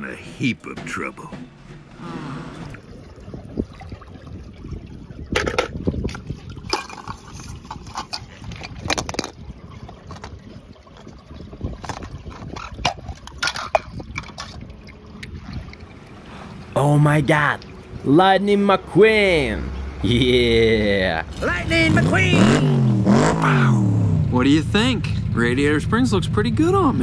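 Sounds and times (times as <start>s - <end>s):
water sloshing: 0.0s - 20.1s.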